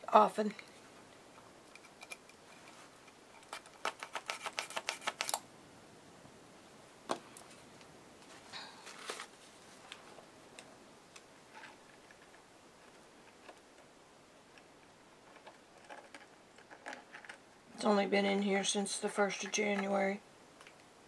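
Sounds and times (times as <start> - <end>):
handling paint supplies: 7.1 - 10.2.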